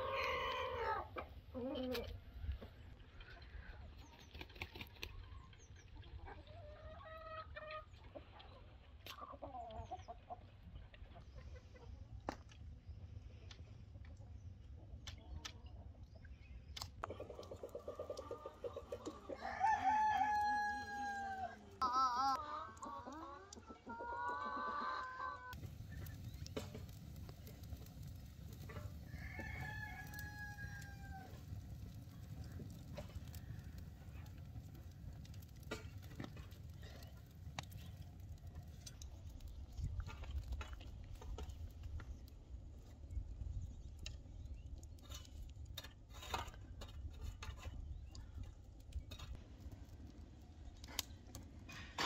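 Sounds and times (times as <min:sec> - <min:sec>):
wood fire crackling: 0:16.8 - 0:21.9, 0:25.5 - 0:52.0
rooster crowing: 0:19.4 - 0:21.6, 0:29.1 - 0:31.4.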